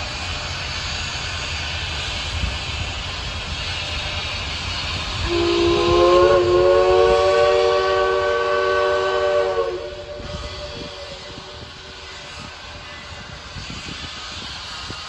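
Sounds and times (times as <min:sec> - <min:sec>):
steady background hiss: 0:00.2 - 0:15.0
steam whistle blowing: 0:05.2 - 0:12.4.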